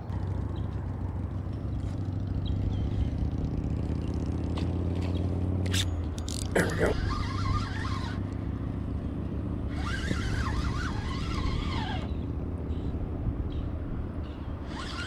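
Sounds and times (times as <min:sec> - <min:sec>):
fishing reel drag buzzing: 0:05.6 - 0:08.5, 0:09.7 - 0:12.2, 0:14.6 - 0:15.0.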